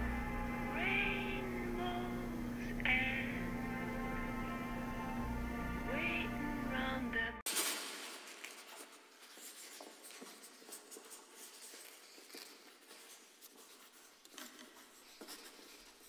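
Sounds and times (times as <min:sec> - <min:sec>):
pen scratching on paper: 0:08.4 - 0:16.0.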